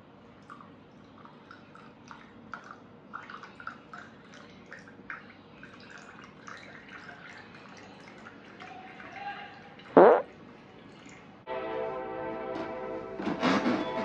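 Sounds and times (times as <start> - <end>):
water dripping: 0.2 - 11.3.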